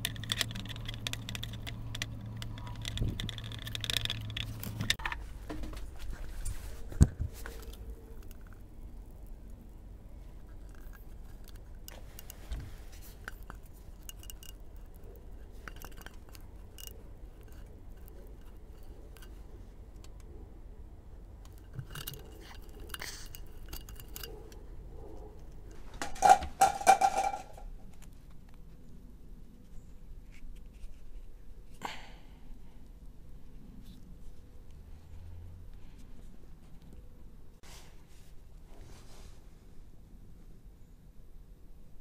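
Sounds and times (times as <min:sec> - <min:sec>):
ringing clattering: 0:26.0 - 0:27.6.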